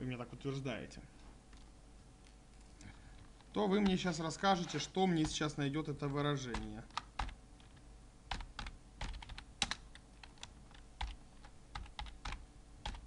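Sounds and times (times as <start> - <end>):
computer keyboard typing: 5.2 - 5.5, 6.4 - 13.0.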